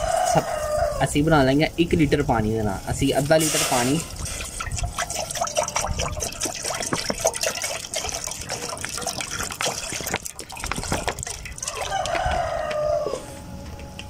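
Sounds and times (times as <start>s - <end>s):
water pouring into saucepan: 3.2s - 12.4s.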